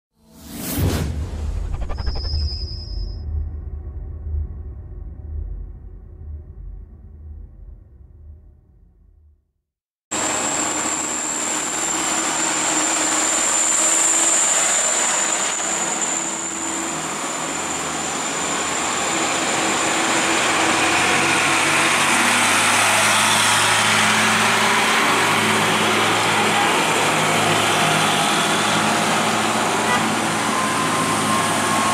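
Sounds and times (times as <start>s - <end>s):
high steady whine: 1.3s - 3.5s
truck engine running: 10.2s - 31.9s
tyre and road noise: 10.2s - 31.9s.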